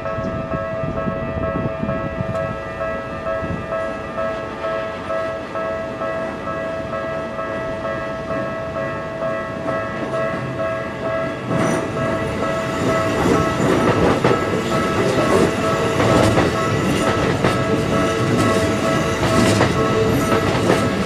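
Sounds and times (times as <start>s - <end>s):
electric train rumbling past: 0.0s - 21.0s
level-crossing alarm bell ringing: 0.0s - 21.0s
train wheels clacking over rail joints: 11.5s - 21.0s.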